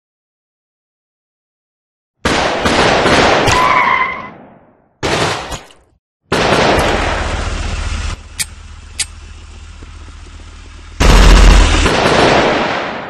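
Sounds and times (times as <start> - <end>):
automatic gunfire: 6.3 - 7.2, 11.0 - 13.0.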